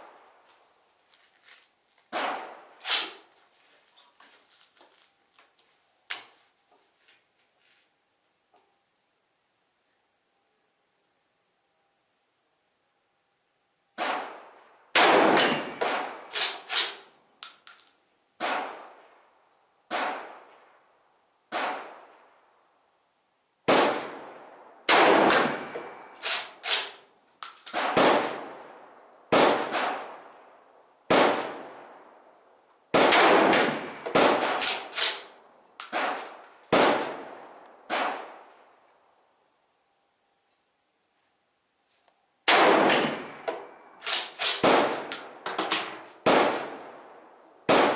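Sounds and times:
rifle shots: 2.1 - 3.3, 14.0 - 17.1, 18.4 - 19.0, 19.9 - 20.5, 21.5 - 22.2, 23.7 - 27.0, 27.7 - 30.4, 31.1 - 32.0, 32.9 - 38.5, 42.5 - 47.1, 47.7 - 47.9
metallic clangs of steel targets: 15.1 - 18.6, 25.2 - 28.0, 34.4 - 36.8.

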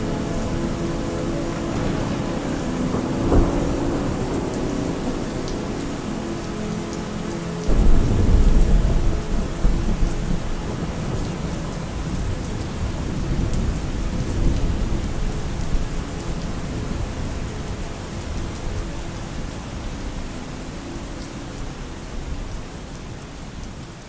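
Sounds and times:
steady rain: 0.0 - 24.0
thunderclap and rumble: 1.6 - 6.0, 7.7 - 16.0.

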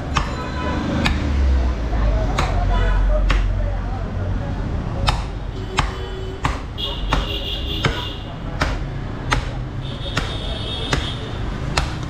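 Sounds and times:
cleaver chopping bone on wood: 0.1 - 0.4, 2.3 - 2.6, 5.0 - 12.0.

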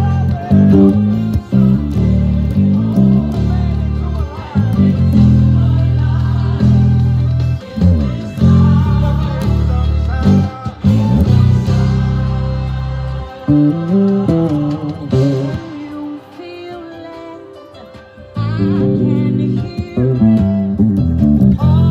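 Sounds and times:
electric bass guitar: 0.0 - 16.2, 18.2 - 21.9
gospel choir singing: 2.2 - 17.4.

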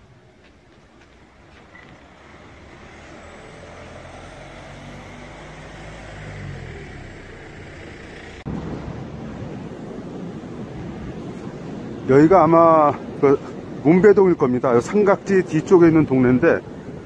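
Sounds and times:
motor vehicle engine approaching: 0.3 - 10.6.

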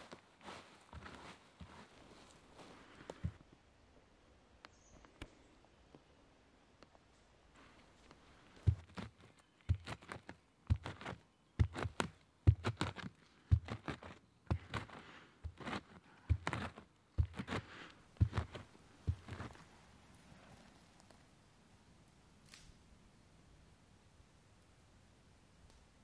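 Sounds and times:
earth and dry leaves crunching: 0.0 - 3.4, 8.4 - 19.7.

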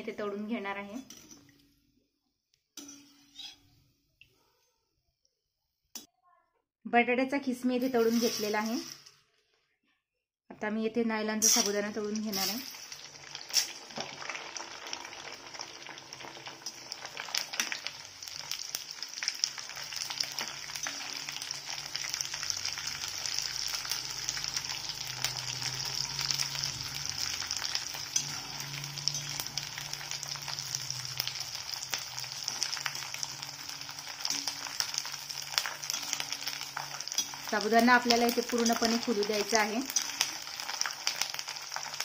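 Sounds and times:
pearls deep-frying in oil: 7.5 - 9.3, 11.2 - 42.0.

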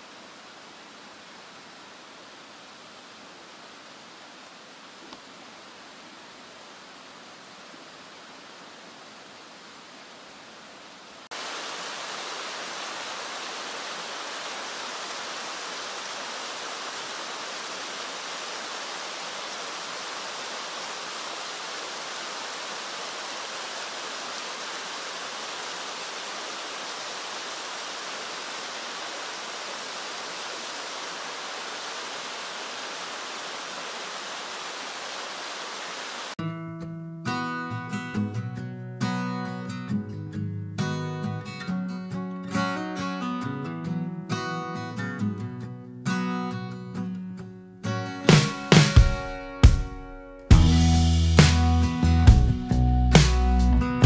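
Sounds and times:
stream and waterfall rushing: 0.0 - 36.4.

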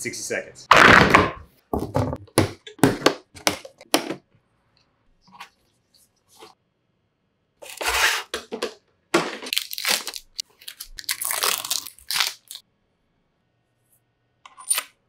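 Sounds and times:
plastic wrap tearing and crinkling: 9.5 - 12.6.

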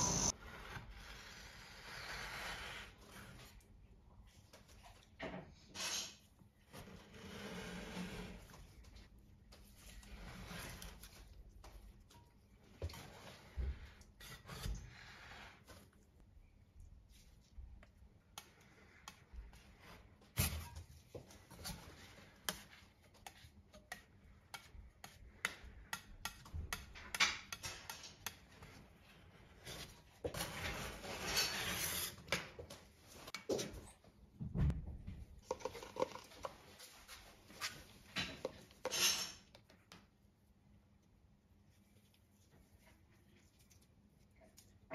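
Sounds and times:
spatulas scraping on steel pan: 29.6 - 32.3.

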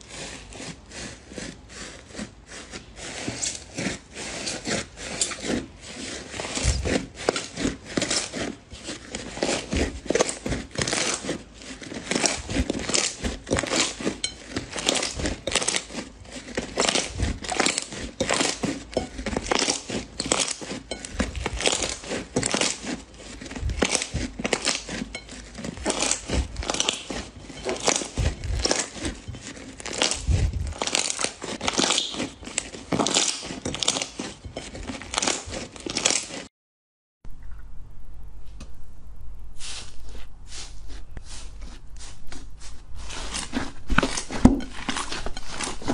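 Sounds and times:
slime squeezed by hand crackling: 29.8 - 34.2.

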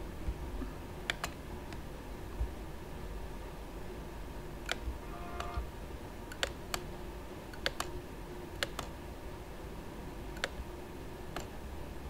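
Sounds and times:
faint room hum: 0.0 - 12.0
computer mouse clicking: 1.1 - 1.4, 4.6 - 5.6, 6.3 - 6.9, 7.5 - 8.0, 8.6 - 9.0, 10.4 - 10.6, 11.3 - 11.6.

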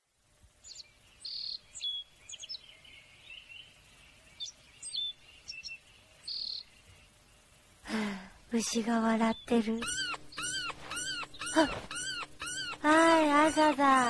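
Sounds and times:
songbirds chirping: 0.1 - 14.0
high bird trill: 8.6 - 14.0.

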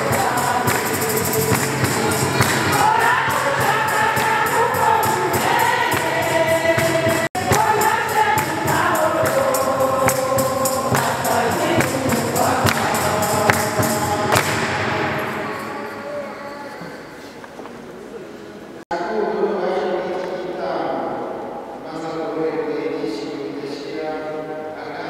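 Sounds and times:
steady percussion beat: 0.0 - 16.2
choir singing a hymn: 0.0 - 17.2.

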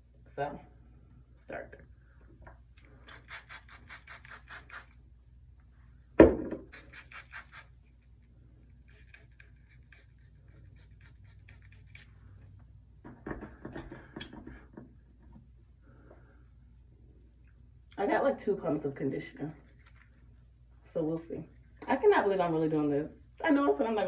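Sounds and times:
loud knock: 6.2 - 6.7
spray bottle squirting: 6.7 - 7.8.

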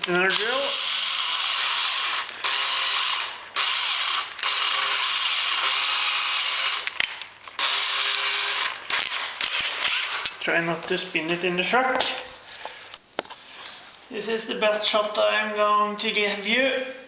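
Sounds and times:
electric drill running: 0.0 - 10.4.

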